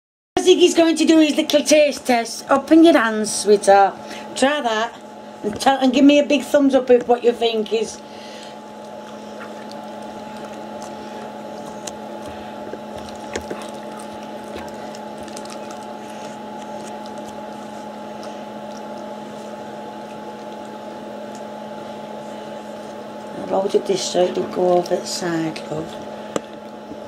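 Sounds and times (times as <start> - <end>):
steady hum with held tones: 0.4 - 27.0
dog chewing and licking from metal bowl: 8.9 - 19.1.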